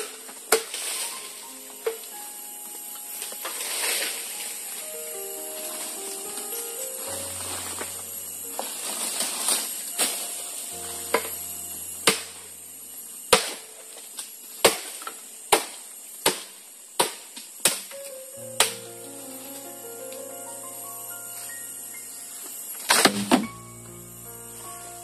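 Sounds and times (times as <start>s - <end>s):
background music: 0.8s - 13.6s, 18.0s - 25.0s
blade chopping into wood: 12.0s - 12.4s, 13.3s - 13.6s, 14.6s - 17.9s.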